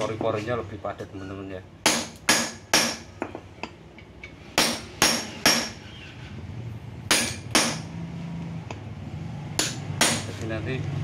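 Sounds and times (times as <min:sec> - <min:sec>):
hammer clanging on metal rod: 0:01.8 - 0:05.8, 0:07.1 - 0:07.9.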